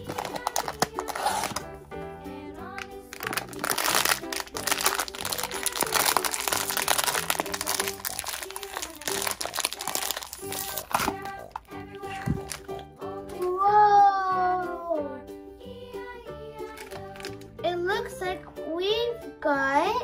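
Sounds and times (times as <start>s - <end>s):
foil bag crinkling: 0.0s - 1.6s, 2.8s - 12.8s, 16.7s - 17.5s
background music: 0.0s - 20.0s.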